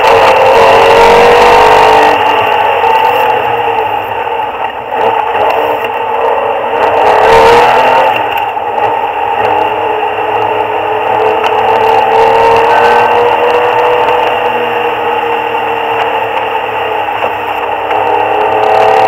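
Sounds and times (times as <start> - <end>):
muffled car engine revving: 0.0 - 19.0.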